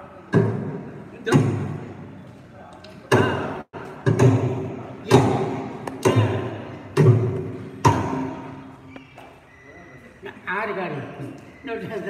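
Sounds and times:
drum strokes ringing: 3.1 - 8.8.

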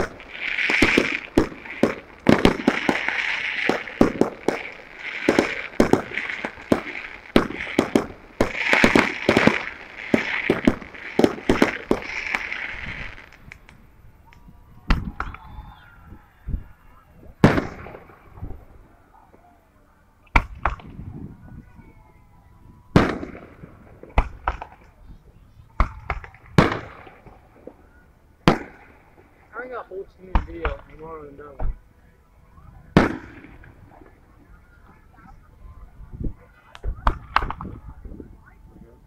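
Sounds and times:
fireworks bangs: 0.0 - 13.8, 16.6 - 19.4, 20.3 - 22.0, 22.9 - 27.8, 28.4 - 31.0, 32.9 - 35.4
fireworks crackling hiss: 0.0 - 15.9.

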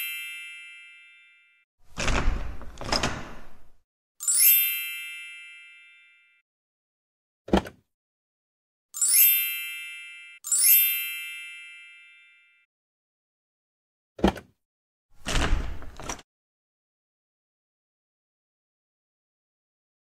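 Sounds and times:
bright ringing chime: 0.0 - 1.6, 4.2 - 6.4, 9.0 - 12.6.

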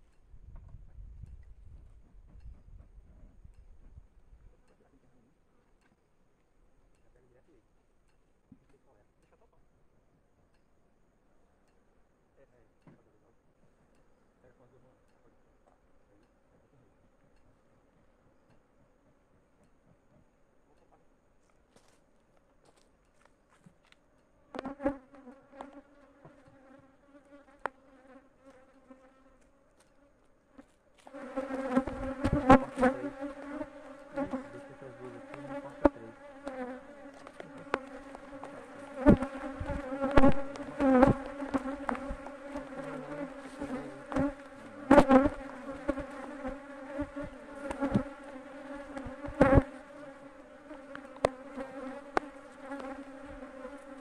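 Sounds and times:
bees buzzing: 24.5 - 29.5, 31.1 - 54.0.

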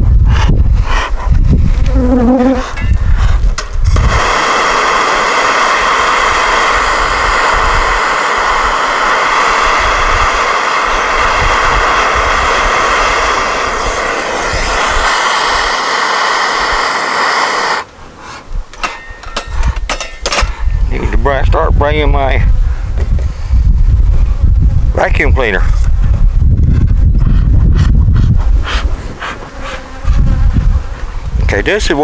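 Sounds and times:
vacuum cleaner motor whining: 12.6 - 17.9.

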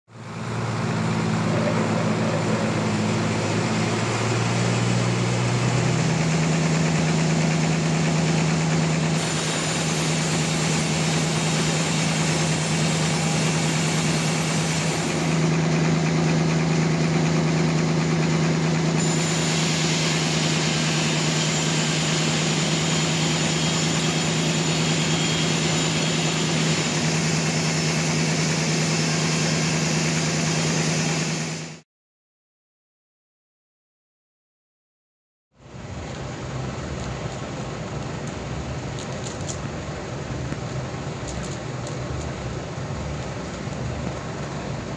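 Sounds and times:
band saw droning: 0.6 - 31.4.

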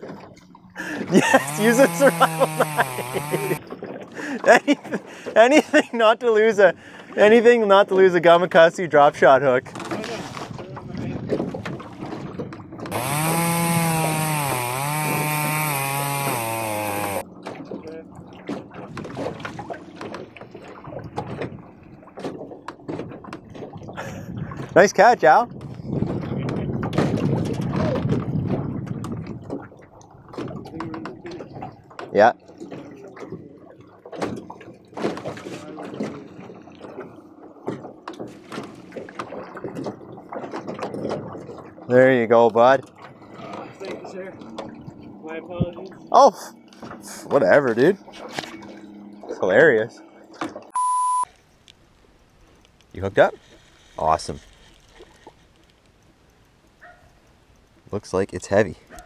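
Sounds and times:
water slapping boat hull: 0.0 - 50.7
chainsaw running at high revs: 1.1 - 3.6, 12.9 - 17.2.

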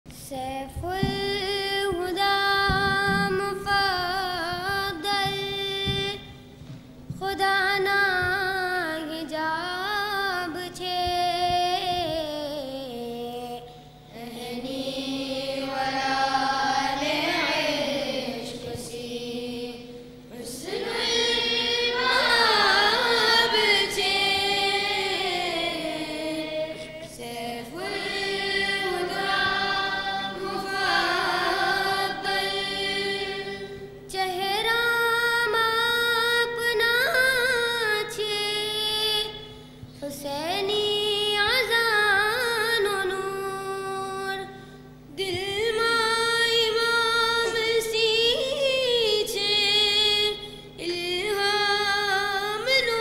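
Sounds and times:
boys singing in unison: 0.3 - 6.4, 14.2 - 38.6.

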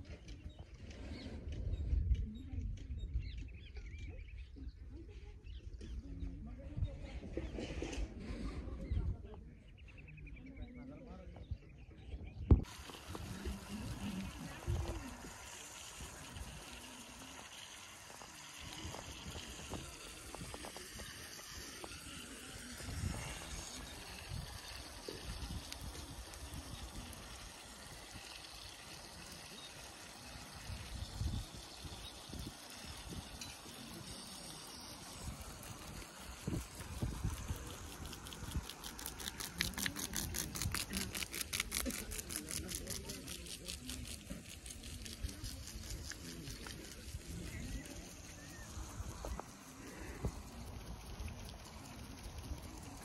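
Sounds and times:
wind on microphone: 0.0 - 9.6, 11.3 - 28.3, 30.5 - 34.1, 35.0 - 42.2
sprinklers spraying water: 12.6 - 53.0.

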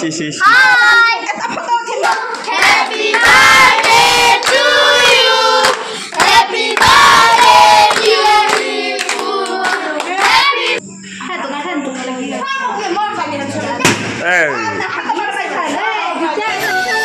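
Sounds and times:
group singing birthday song: 0.4 - 11.0
hand-clapping: 5.6 - 10.4.

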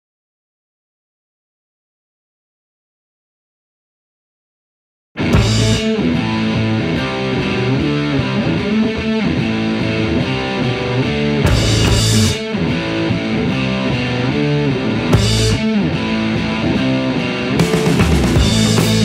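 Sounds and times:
rock music with electric guitar: 5.2 - 19.0.

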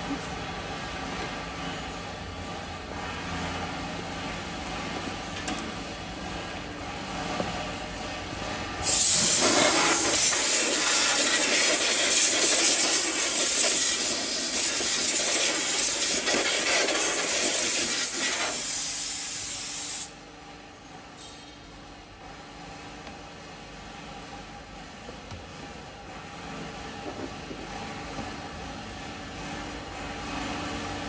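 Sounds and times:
compressed air blow gun hissing: 8.8 - 20.1.

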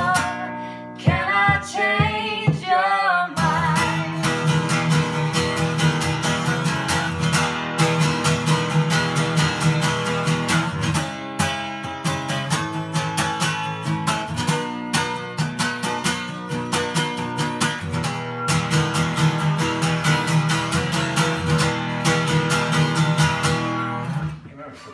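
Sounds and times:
acoustic guitar strumming: 0.0 - 24.5.

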